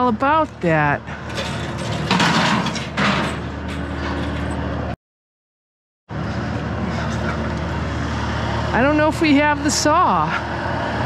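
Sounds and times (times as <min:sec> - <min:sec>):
metal rattling clatters: 0:01.2 - 0:04.7
low engine hum: 0:06.1 - 0:11.0.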